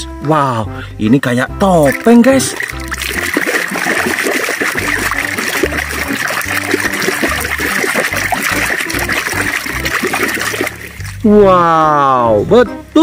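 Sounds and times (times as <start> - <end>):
music bass line: 0.0 - 13.0
hand splashing in water: 1.8 - 11.2.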